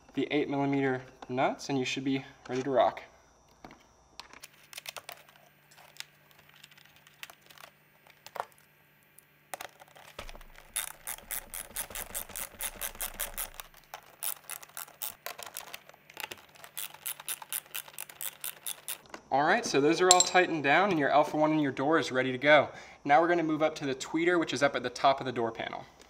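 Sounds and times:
ratchet clicking: 0:10.7 - 0:13.6, 0:14.2 - 0:15.2, 0:16.8 - 0:19.0.

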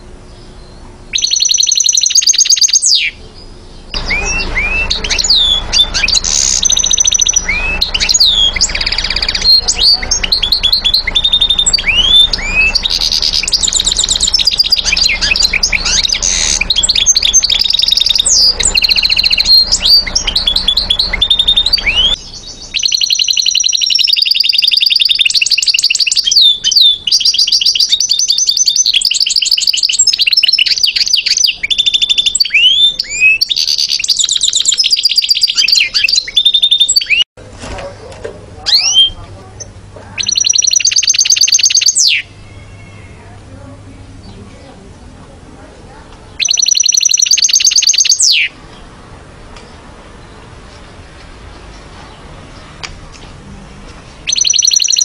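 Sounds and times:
low background rumble: 0:00.0 - 0:22.8
goldfinch singing: 0:00.3 - 0:37.2, 0:38.7 - 0:44.8, 0:46.3 - 0:48.9, 0:54.2 - 0:55.0.

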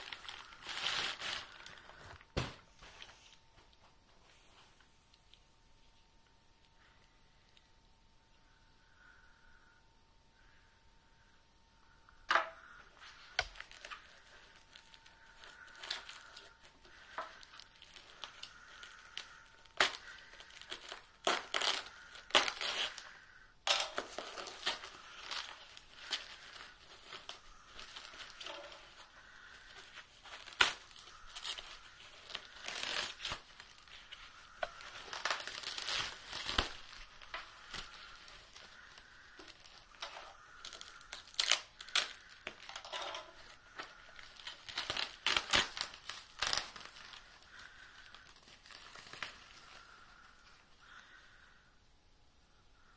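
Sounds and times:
foam packaging crinkling: 0:00.0 - 0:03.7, 0:12.3 - 0:51.2.

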